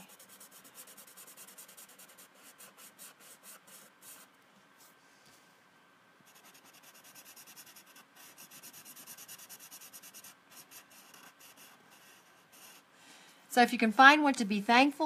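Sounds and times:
marker scratching over paper: 0:00.0 - 0:04.3, 0:06.3 - 0:12.8.

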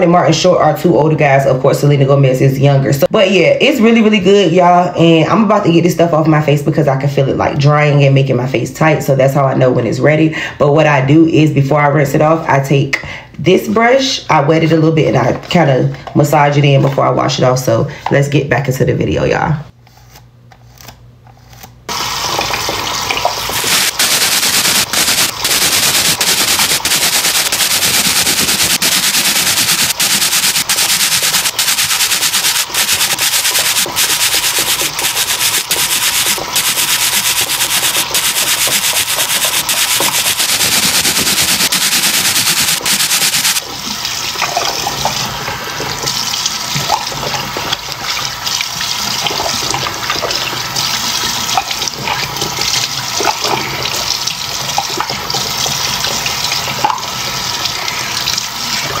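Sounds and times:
tap water rushing into basin: 0:21.9 - 0:59.0
water splashing: 0:21.9 - 0:59.0.

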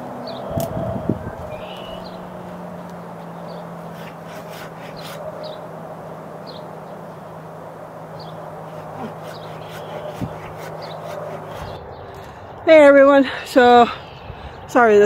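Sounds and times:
steady low hum: 0:00.0 - 0:15.0
bird chirps: 0:00.2 - 0:05.7, 0:06.4 - 0:07.3, 0:08.1 - 0:12.4
hand saw rasping through wood: 0:03.6 - 0:05.7, 0:08.4 - 0:11.8.

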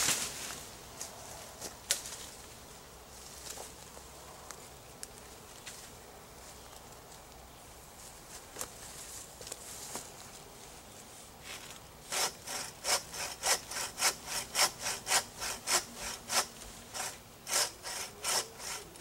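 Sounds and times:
footsteps on twigs and leaves: 0:00.0 - 0:11.9.

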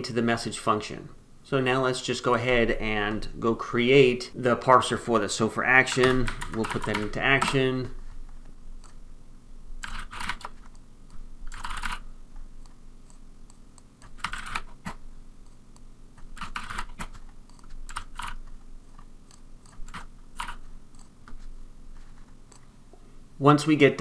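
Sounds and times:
computer keyboard typing: 0:05.8 - 0:07.7, 0:09.8 - 0:12.0, 0:12.6 - 0:21.4.

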